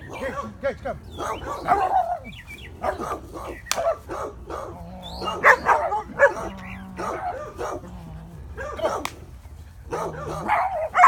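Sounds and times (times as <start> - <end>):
dog barking and yipping: 0.0 - 9.2, 9.8 - 11.0.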